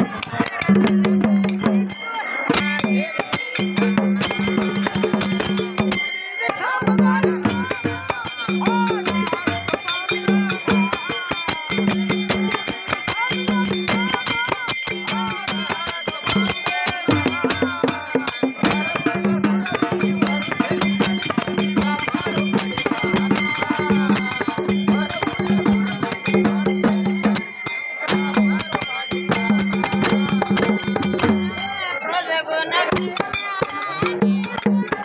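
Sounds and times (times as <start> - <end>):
hand drum beating: 0.0 - 31.9, 32.9 - 35.0
metal bells jingling: 0.0 - 35.0.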